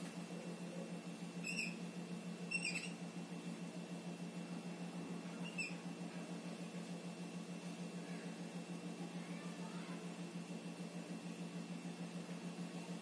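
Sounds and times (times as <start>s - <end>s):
steady low hum: 0.0s - 13.0s
whiteboard marker squeaking: 2.5s - 3.0s.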